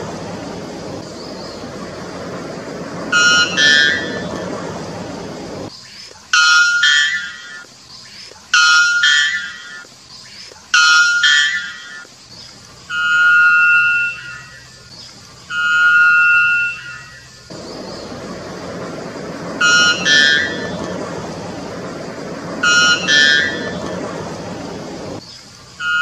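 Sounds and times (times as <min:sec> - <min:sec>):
steady rushing noise: 0:00.0 - 0:05.7, 0:17.4 - 0:25.2.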